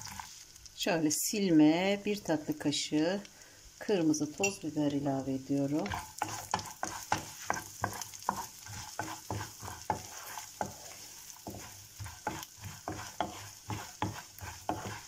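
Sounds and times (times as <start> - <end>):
wooden spatula scraping pan: 0.0 - 0.3, 5.6 - 15.0
nuts sizzling in oil: 0.0 - 15.0.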